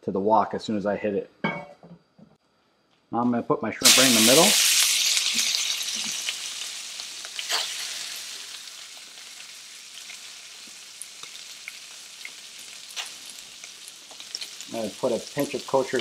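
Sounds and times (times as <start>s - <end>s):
shrimp sizzling in oil: 3.8s - 16.0s
oil popping and crackling: 3.9s - 16.0s.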